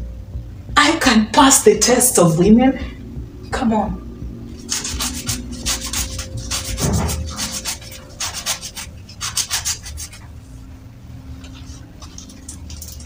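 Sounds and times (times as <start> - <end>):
hands scrunching leafy greens: 11.4 - 13.0.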